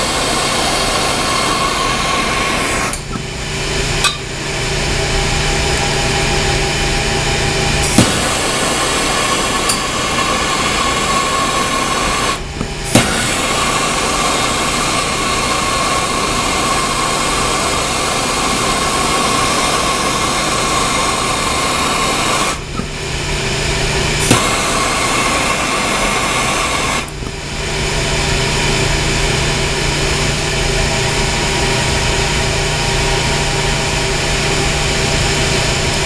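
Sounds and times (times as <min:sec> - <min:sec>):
torch burning with hiss: 0:00.0 - 0:04.5, 0:07.4 - 0:30.4.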